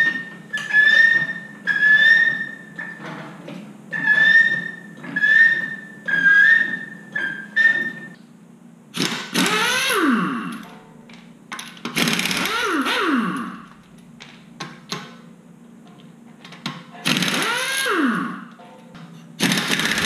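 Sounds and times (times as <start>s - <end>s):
pneumatic impact wrench: 9.0s - 10.7s, 11.8s - 13.8s, 17.0s - 18.5s, 19.4s - 20.0s.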